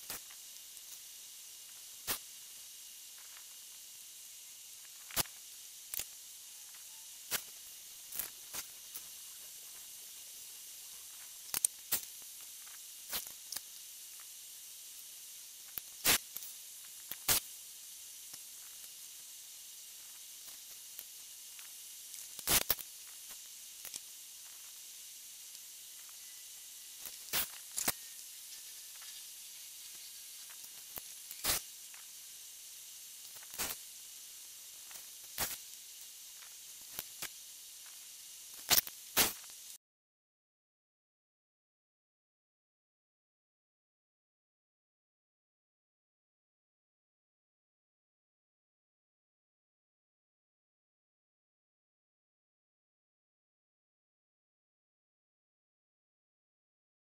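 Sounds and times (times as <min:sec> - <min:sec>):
steady high hiss: 0:00.0 - 0:39.8.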